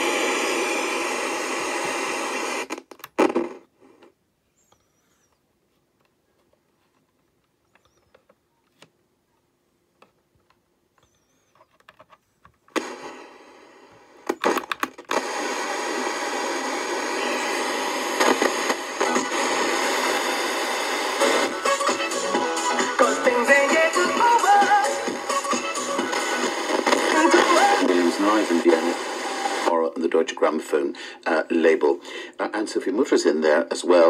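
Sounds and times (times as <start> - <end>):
radio static hiss: 0.0 - 4.2, 12.7 - 34.0
sharp clicks from speaker: 14.2 - 15.2.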